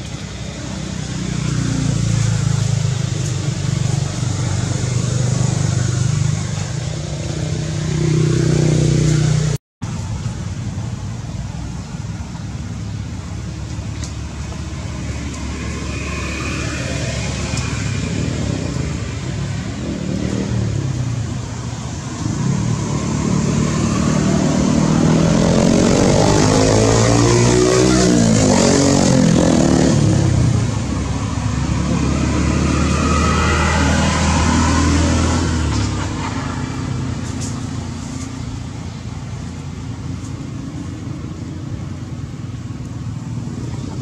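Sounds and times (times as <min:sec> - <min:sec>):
vehicle engine running: 0:23.1 - 0:28.4.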